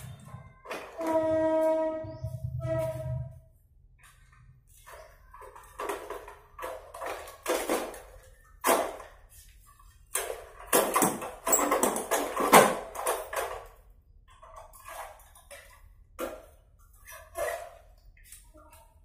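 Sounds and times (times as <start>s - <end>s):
motorbike frame rattling and clanking: 10.2s - 13.9s.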